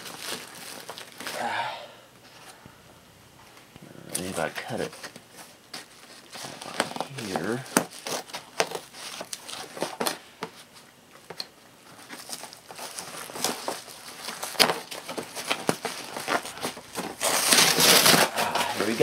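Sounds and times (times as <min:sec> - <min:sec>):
hands tearing cardboard: 0:04.1 - 0:10.6, 0:11.2 - 0:19.0.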